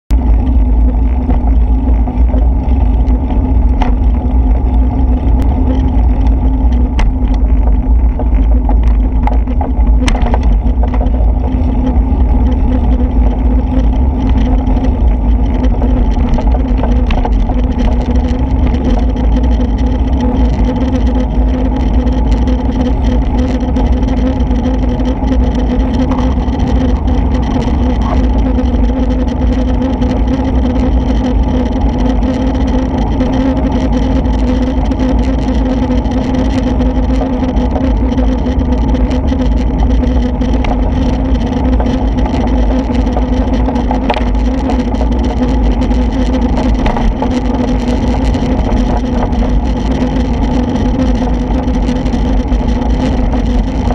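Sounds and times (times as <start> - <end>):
sharp ticks: 0.1 - 53.9
steady low hum: 0.1 - 53.9
wind rumbling on microphone: 0.1 - 53.9.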